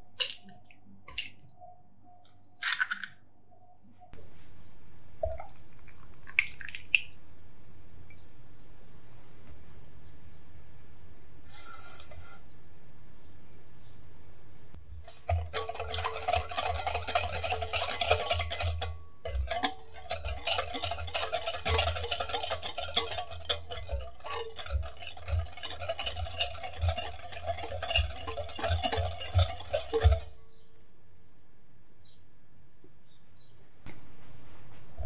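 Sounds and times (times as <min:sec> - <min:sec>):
liquid sloshing: 0:15.1 - 0:30.3
whisk clinking against glass bowl: 0:15.1 - 0:30.4.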